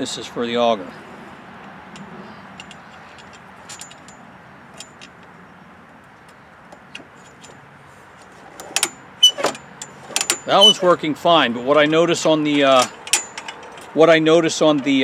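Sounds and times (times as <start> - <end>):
small metal clicks: 1.6 - 5.4, 12.6 - 14.0.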